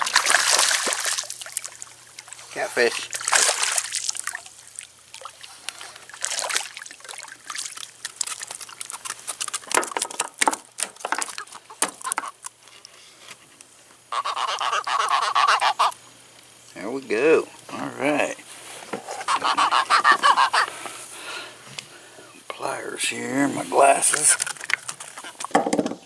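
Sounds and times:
fish splashing in water: 0.0s - 12.4s, 24.0s - 25.5s.

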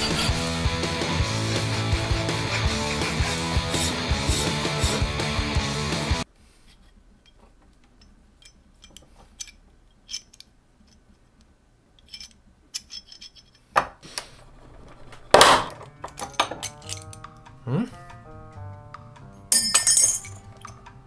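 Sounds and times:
metal clinks and taps: 7.2s - 11.0s, 15.8s - 17.6s, 19.2s - 21.0s.

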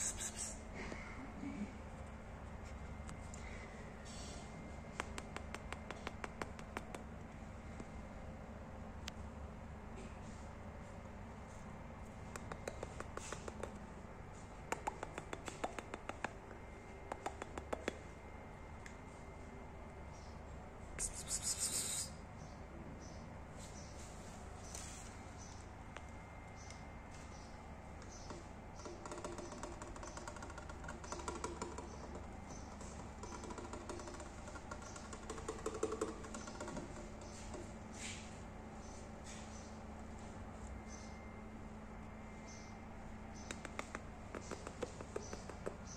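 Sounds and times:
cat hissing: 0.0s - 0.6s.

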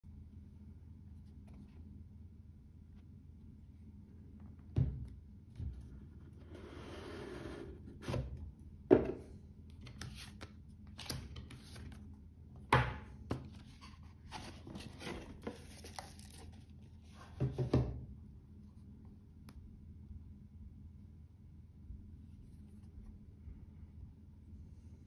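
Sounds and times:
cardboard box sliding and scraping: 6.4s - 8.2s.

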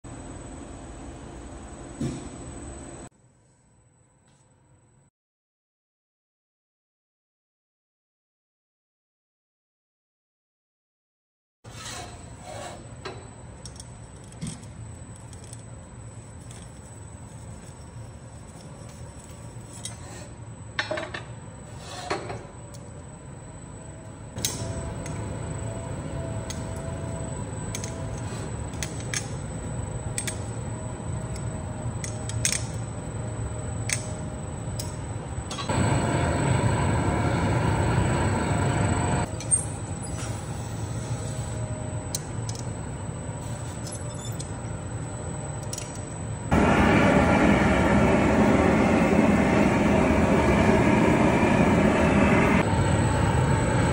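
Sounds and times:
gas burner roar: 24.4s - 32.7s, 35.5s - 39.4s, 46.5s - 53.9s.

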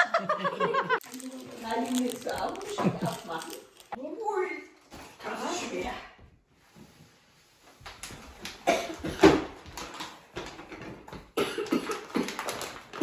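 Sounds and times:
wrapping paper crinkling: 1.0s - 4.0s, 11.9s - 13.0s
cough-like vocal sounds: 8.6s - 9.4s, 11.4s - 12.5s.

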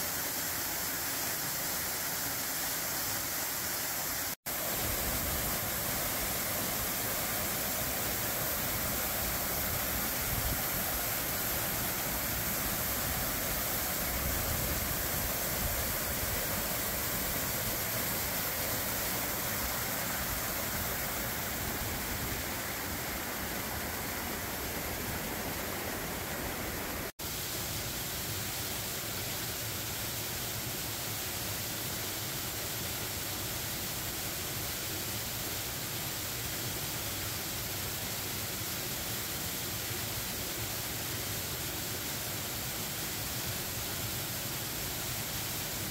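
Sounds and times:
waterfall rushing: 0.0s - 27.2s.

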